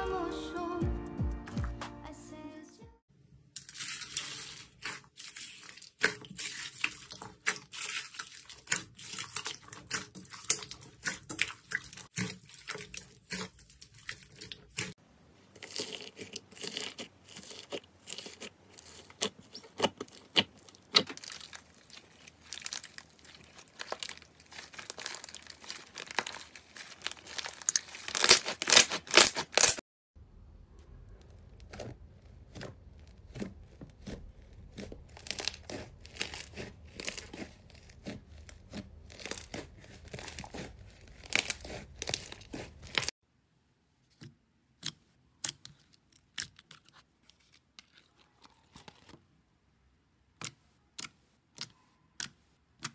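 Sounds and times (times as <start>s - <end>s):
slime crackling when squeezed: 15.6s - 29.8s, 34.0s - 43.1s.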